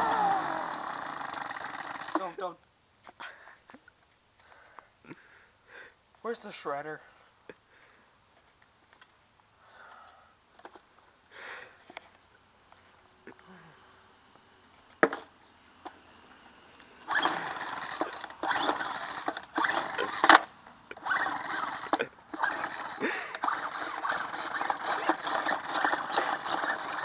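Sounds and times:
recoil starter pulled rasping: 0:00.0 - 0:02.4, 0:17.1 - 0:27.0.

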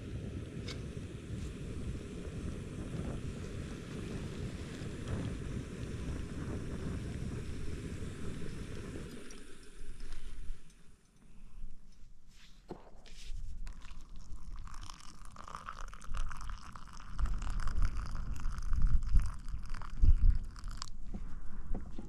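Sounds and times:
water pouring into mug: 0:13.6 - 0:20.9.

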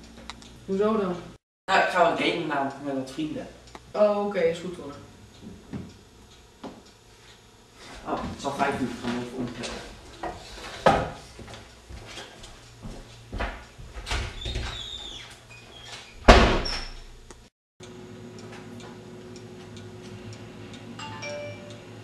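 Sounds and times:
steady background hum: 0:00.0 - 0:22.0
door slamming shut: 0:16.2 - 0:17.0.

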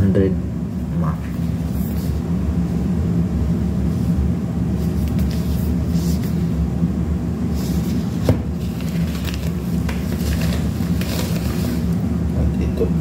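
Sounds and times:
packaging rustling and scraping: 0:04.8 - 0:06.4, 0:07.5 - 0:12.0.

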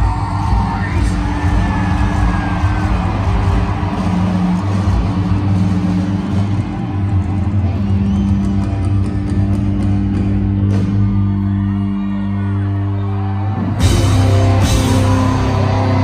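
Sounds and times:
crowd shouting: 0:00.0 - 0:08.3
drums crashing: 0:00.0 - 0:11.7, 0:13.6 - 0:16.0
live rock band playing: 0:00.0 - 0:12.1, 0:12.8 - 0:16.0.

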